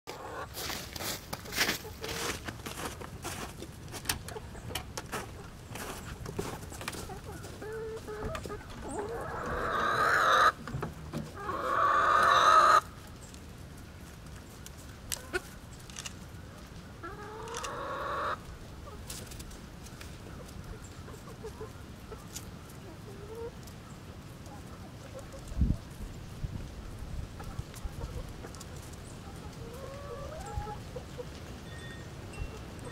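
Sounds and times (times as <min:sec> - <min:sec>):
hens clucking: 0:00.1 - 0:13.2, 0:14.6 - 0:15.6, 0:16.8 - 0:23.7, 0:24.4 - 0:26.0, 0:26.9 - 0:31.5
hen long drawn-out calls: 0:07.1 - 0:10.6, 0:11.3 - 0:12.9, 0:17.0 - 0:18.5, 0:29.6 - 0:31.0.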